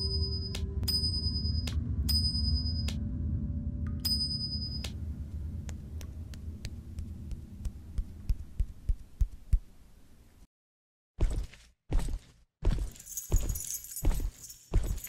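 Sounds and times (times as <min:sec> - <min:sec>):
low hum: 0:00.0 - 0:10.5.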